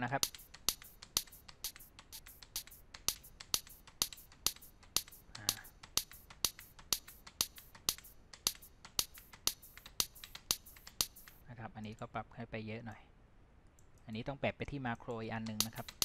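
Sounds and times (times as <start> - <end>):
sampled hand clap snare hits: 0.0 - 11.4, 15.5 - 16.0.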